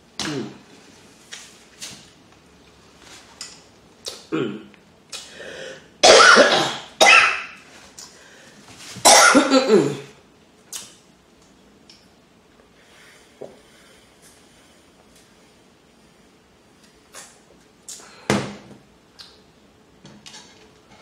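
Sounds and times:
throat-clearing: 0:04.1 - 0:05.3
woman coughing: 0:06.0 - 0:07.5, 0:09.1 - 0:10.1.

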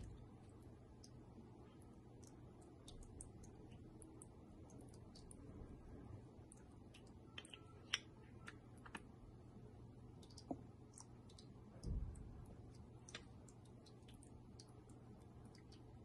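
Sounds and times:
soft low thud: 0:11.8 - 0:12.4.

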